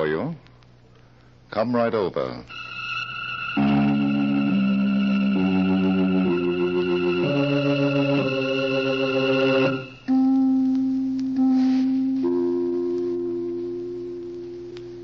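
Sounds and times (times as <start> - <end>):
organ chords: 2.5 - 10.7.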